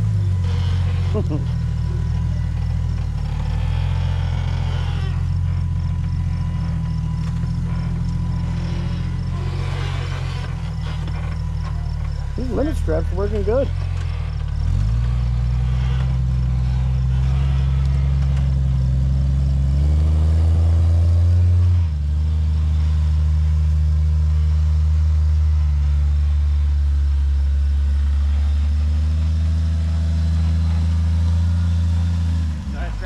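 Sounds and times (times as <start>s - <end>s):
engine working under load: 0.0s - 33.0s.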